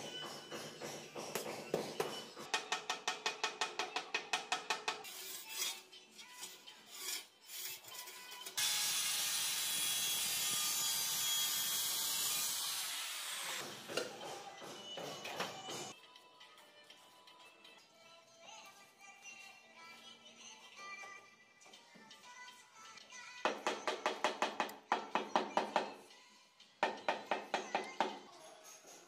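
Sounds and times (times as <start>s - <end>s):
scraping strokes on tile: 5.0s - 8.6s
loud hiss of tile cutting: 8.6s - 13.9s.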